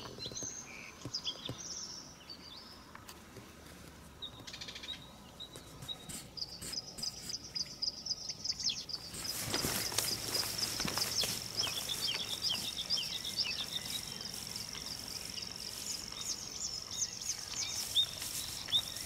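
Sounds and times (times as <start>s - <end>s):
birds chirping and whistling: 0.0s - 2.8s, 4.2s - 19.0s
high steady bird trill: 4.2s - 19.0s
rustling: 8.8s - 19.0s.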